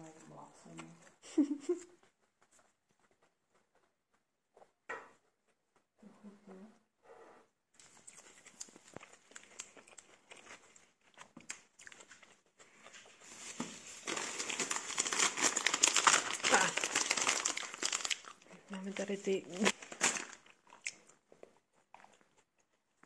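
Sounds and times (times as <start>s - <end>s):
plastic bags crinkling: 13.2s - 20.7s.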